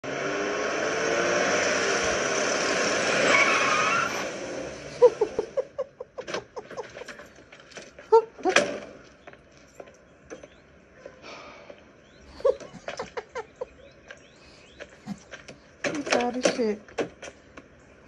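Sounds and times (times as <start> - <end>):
car driving by: 0.0 - 5.6
birds chirping: 4.9 - 18.0.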